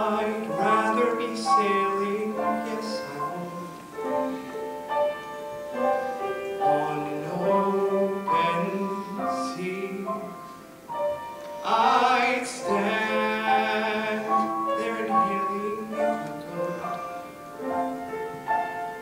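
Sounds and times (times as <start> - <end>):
man singing into microphone: 0.0 - 4.0, 6.4 - 10.5, 11.6 - 17.4
held accompaniment chords: 0.0 - 19.0.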